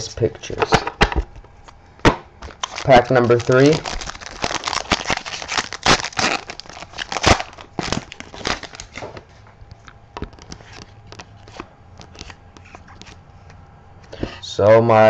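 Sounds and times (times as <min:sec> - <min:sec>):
foil wrapper crinkling and tearing: 0:02.5 - 0:09.2.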